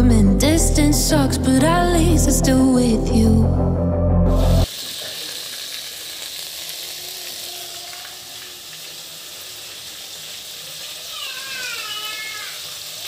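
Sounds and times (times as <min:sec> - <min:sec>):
food sizzling in a pan: 0:04.6 - 0:13.0.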